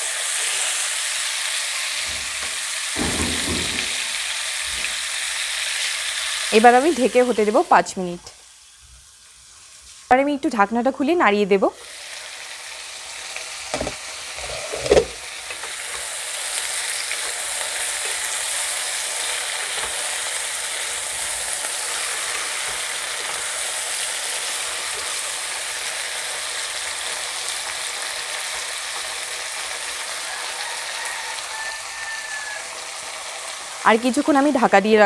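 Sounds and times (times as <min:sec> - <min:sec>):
vegetables sizzling in oil: 0:00.0 - 0:35.0
sharp knocks: 0:02.0 - 0:04.9.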